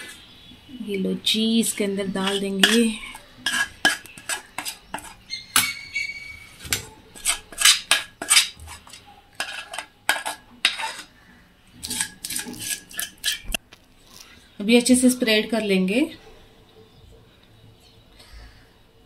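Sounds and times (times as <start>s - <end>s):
metal spoon scraping a steel pan: 0.0s - 0.4s, 1.6s - 11.2s, 11.8s - 13.6s.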